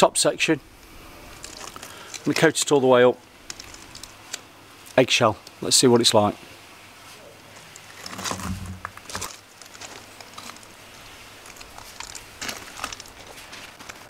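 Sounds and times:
camera handling scuffs and knocks: 0:08.1 - 0:09.3.

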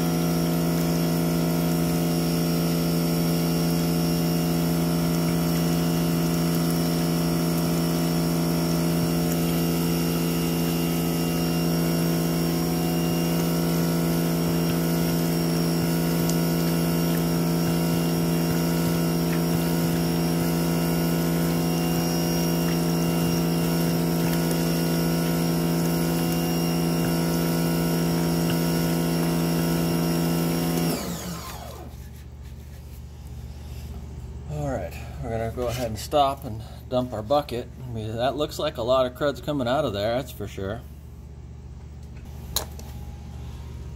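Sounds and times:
pressure washer motor humming: 0:00.0 - 0:32.6.

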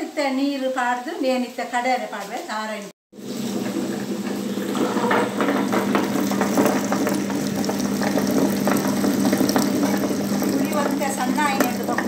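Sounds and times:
motor hum: 0:03.2 - 0:12.0
stone rollers grinding paste: 0:03.2 - 0:12.0.

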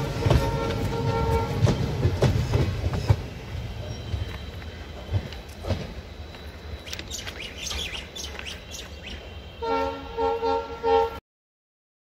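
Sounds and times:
train horn blasts: 0:00.0 - 0:02.1, 0:09.0 - 0:11.2
train rumbling: 0:00.0 - 0:11.2
birds chirping: 0:06.4 - 0:09.7.

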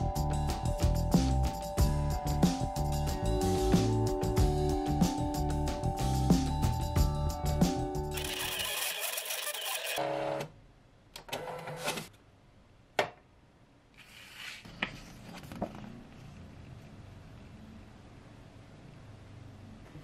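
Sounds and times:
sharp machine clicks: 0:08.1 - 0:10.0
cutting machine motor and rollers: 0:08.2 - 0:10.4.

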